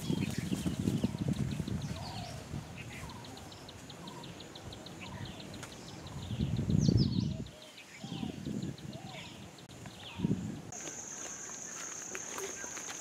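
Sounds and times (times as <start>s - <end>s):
birds chirping and whistling: 0.0s - 13.0s.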